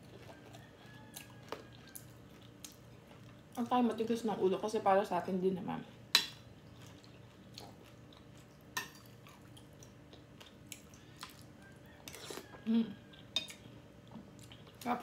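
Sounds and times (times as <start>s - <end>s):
chewing crispy food: 0.0s - 3.7s, 6.5s - 15.0s.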